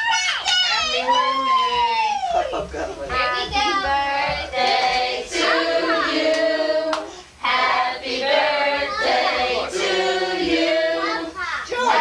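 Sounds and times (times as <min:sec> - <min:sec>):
group singing long notes: 0:03.4 - 0:12.0.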